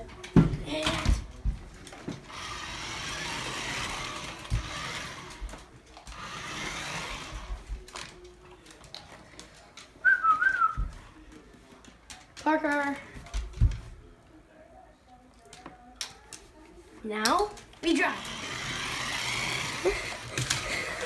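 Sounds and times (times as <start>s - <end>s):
toy car electric motor whirring: 2.3s - 5.5s, 6.1s - 7.6s, 18.1s - 20.9s.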